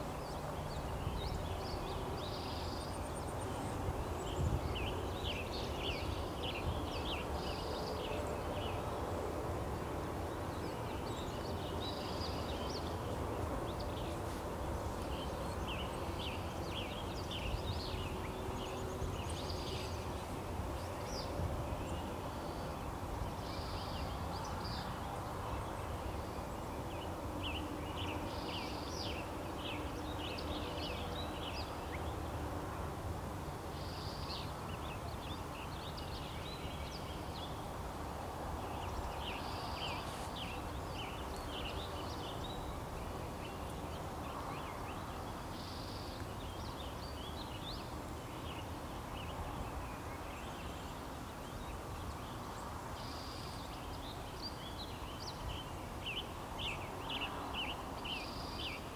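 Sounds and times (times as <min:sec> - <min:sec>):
small birds chirping: 0:38.6 - 0:58.9.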